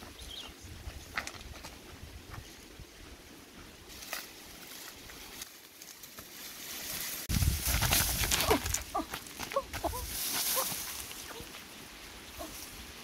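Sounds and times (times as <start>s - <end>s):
dry grass rustling: 0.0s - 13.0s
scuffling: 3.6s - 11.7s.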